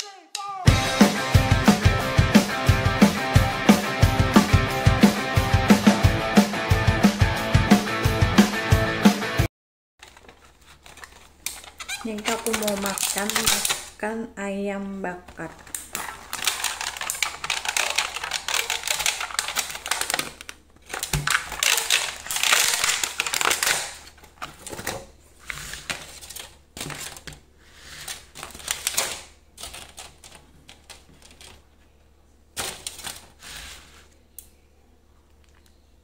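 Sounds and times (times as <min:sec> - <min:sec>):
plastic box rustling and tapping: 0:10.0 - 0:13.8, 0:15.3 - 0:25.2
plastic lid crinkling: 0:10.0 - 0:14.0, 0:15.2 - 0:31.7, 0:32.6 - 0:34.1.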